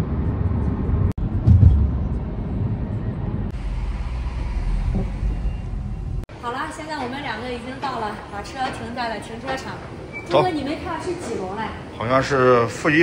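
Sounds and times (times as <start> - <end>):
car road and engine rumble: 0.0 - 6.3.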